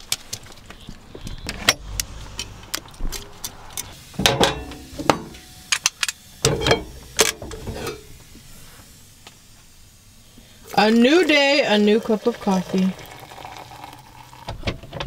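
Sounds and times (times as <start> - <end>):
low rumble of movement: 0.5 - 4.0
pot clattering on stove grate: 4.2 - 5.5, 6.4 - 8.1.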